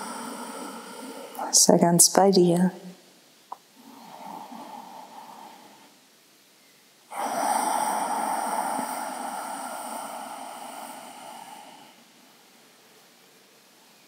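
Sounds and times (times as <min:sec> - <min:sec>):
long exhale of breath: 0:00.0 - 0:01.5, 0:03.8 - 0:06.0, 0:07.1 - 0:12.2.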